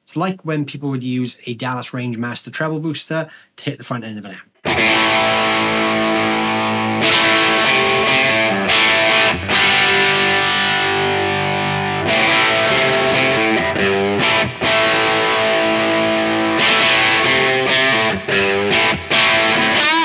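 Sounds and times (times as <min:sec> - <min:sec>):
overdriven electric guitar chords: 0:04.6 - 0:20.0.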